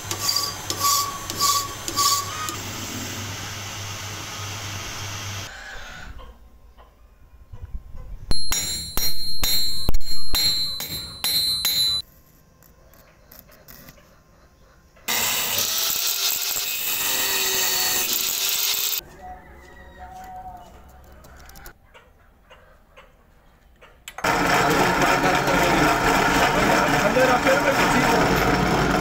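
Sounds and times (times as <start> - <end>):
angle grinder cutting steel: 0.0 - 5.5, 15.1 - 19.0, 24.2 - 29.0.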